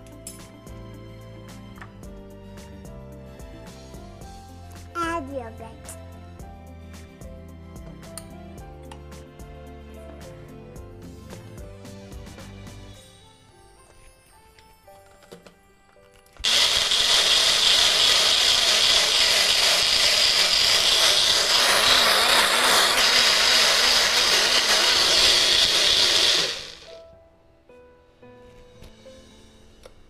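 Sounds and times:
blender motor humming: 16.4 - 27.0.

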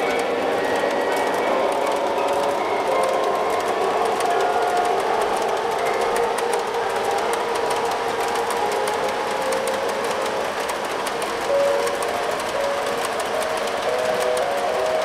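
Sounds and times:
model train rumbling on track: 0.0 - 15.0
wheels clicking over rail joints: 0.0 - 15.0.

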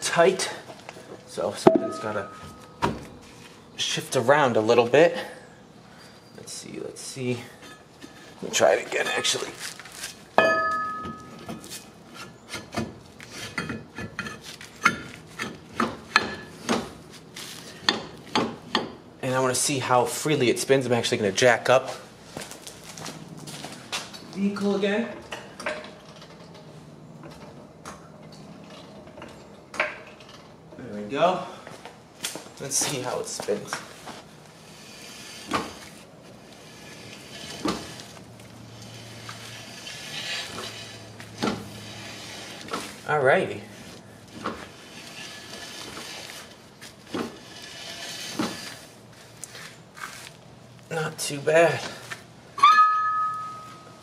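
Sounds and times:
brake drum scraping: 0.0 - 4.8, 32.6 - 54.0
metal knocks: 1.6 - 3.1, 10.4 - 11.6
brake drum scraping on shoes: 5.9 - 27.6, 31.0 - 54.0.

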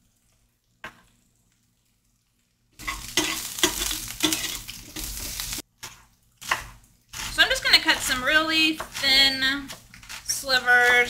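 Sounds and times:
utensil scraping a pan: 2.8 - 5.6, 6.5 - 11.0
onions sizzling in a skillet: 2.8 - 11.0.

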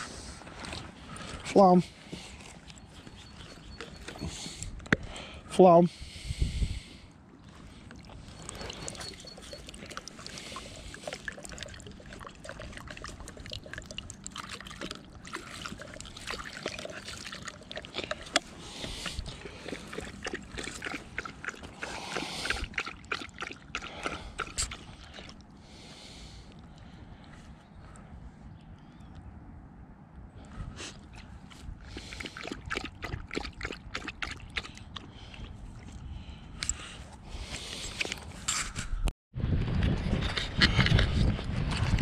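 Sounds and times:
puppy lapping water: 2.5 - 4.7, 7.5 - 25.5, 30.9 - 36.0.

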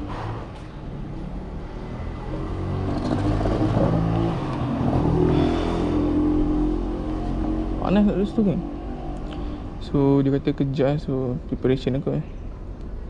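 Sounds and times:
vehicle engine running: 2.0 - 6.8.

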